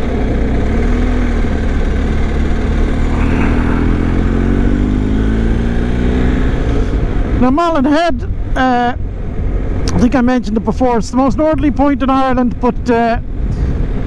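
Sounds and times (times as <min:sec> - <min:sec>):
motorcycle engine running: 0:00.0 - 0:07.2
low wind rumble: 0:00.0 - 0:14.0.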